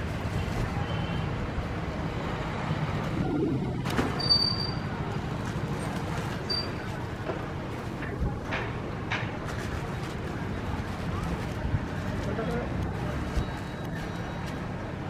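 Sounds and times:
low background rumble: 0:02.8 - 0:04.2.

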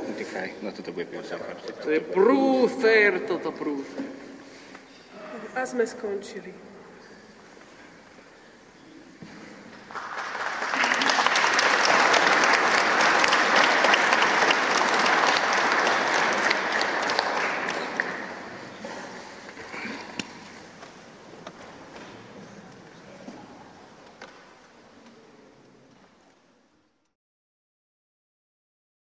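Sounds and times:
audience applause: 0:09.8 - 0:20.2.

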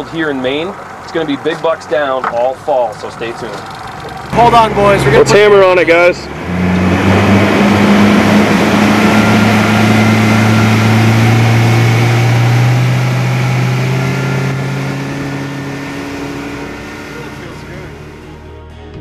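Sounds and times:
outboard motor at full throttle: 0:00.0 - 0:18.4
wind and water rushing: 0:03.8 - 0:17.9.

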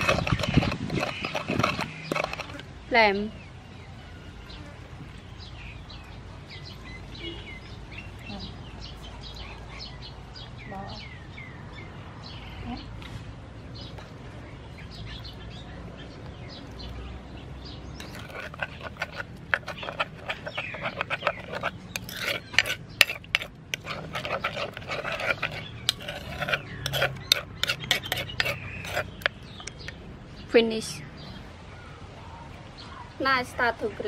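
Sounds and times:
spoon scraping mortar: 0:00.0 - 0:02.6, 0:18.0 - 0:30.0.

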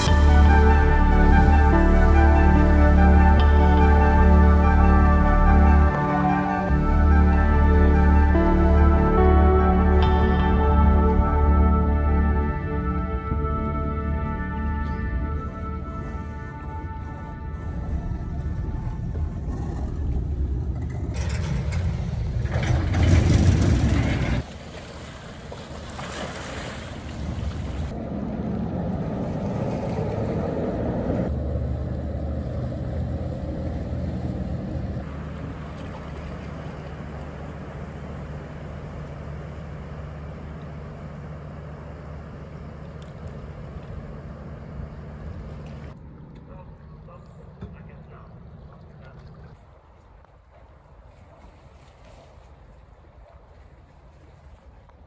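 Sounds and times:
water rushing past hull: 0:00.0 - 0:41.3
ferry engine rumble: 0:00.0 - 0:55.0.

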